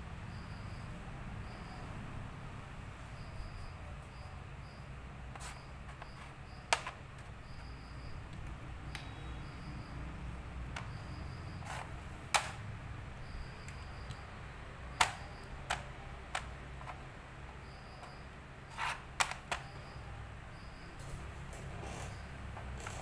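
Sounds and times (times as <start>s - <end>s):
chess pieces clicking on board: 5.3s - 12.7s, 13.3s - 20.0s.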